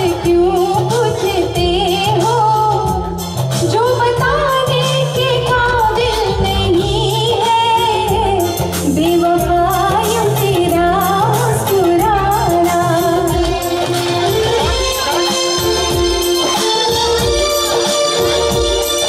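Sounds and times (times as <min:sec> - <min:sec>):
woman singing into a microphone: 0:00.0 - 0:17.1
keyboard with bass line: 0:00.0 - 0:19.0
steady beat: 0:10.7 - 0:19.0.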